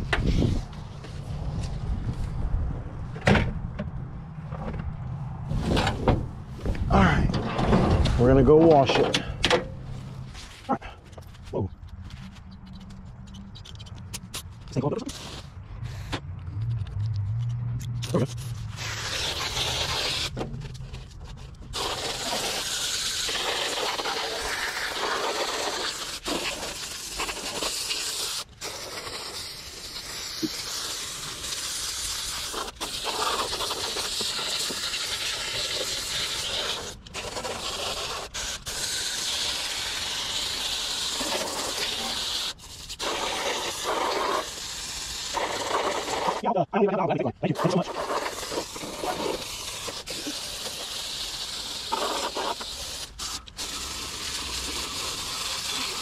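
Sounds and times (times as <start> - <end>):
water spraying from a hose: 18.1 - 46.4, 47.5 - 56.0.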